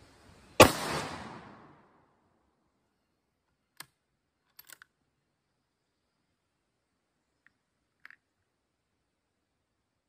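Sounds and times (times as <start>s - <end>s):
rifle shot echo: 0.6s - 2.0s.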